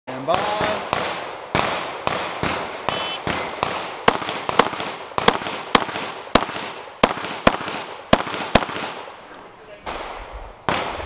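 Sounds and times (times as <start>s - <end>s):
pistol shots: 0.4s - 9.1s
faint distant gunshots: 0.4s - 9.2s, 9.8s - 11.0s.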